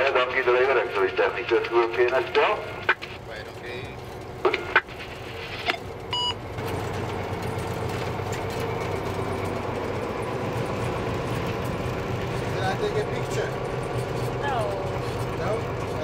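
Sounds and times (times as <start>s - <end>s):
diesel locomotive drone: 0.0s - 16.0s
short electronic beep: 6.1s - 6.4s.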